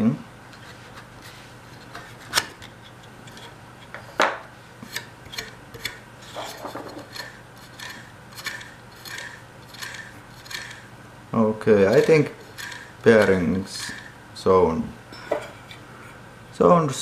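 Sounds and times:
hand tools clicking on metal: 0:07.0 - 0:10.8, 0:11.9 - 0:14.1.

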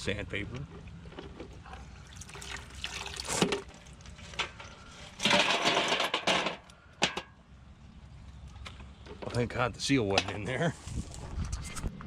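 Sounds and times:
water splashing from bucket: 0:01.8 - 0:04.4
clinks and knocks: 0:05.2 - 0:07.4.

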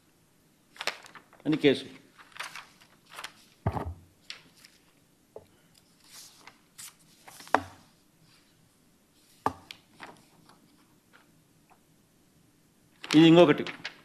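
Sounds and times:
paper rustling and shuffling: 0:00.7 - 0:05.0, 0:05.8 - 0:07.8, 0:09.2 - 0:11.3, 0:13.0 - 0:14.0.

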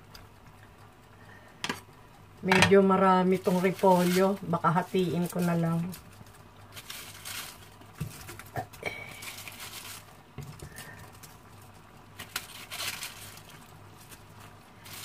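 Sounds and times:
cabbage leaves rustling: 0:03.2 - 0:15.0.

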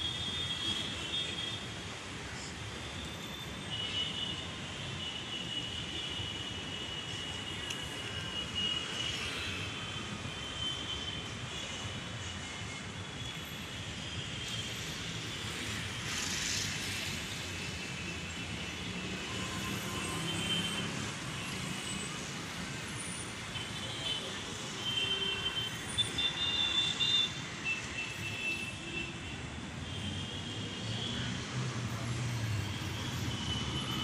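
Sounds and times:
traffic passing: 0:13.9 - 0:28.0, 0:29.0 - 0:34.0.

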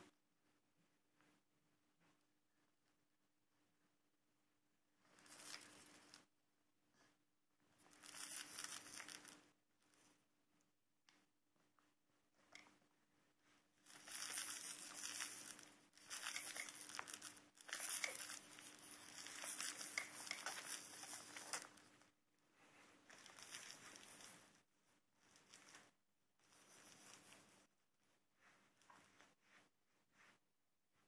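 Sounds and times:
plush toy crinkling: 0:07.9 - 0:09.5, 0:13.8 - 0:22.0, 0:23.0 - 0:24.6.

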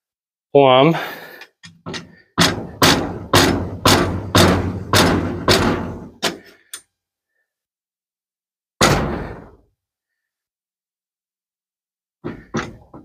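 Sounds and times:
heavy thumps pounding wooden post: 0:01.7 - 0:06.4, 0:08.8 - 0:09.6, 0:12.2 - 0:13.0.

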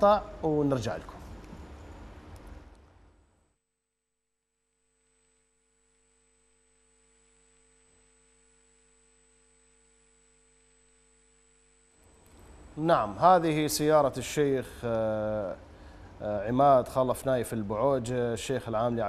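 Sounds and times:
faint electrical hum: 0:00.0 - 0:03.6, 0:04.4 - 0:19.0.

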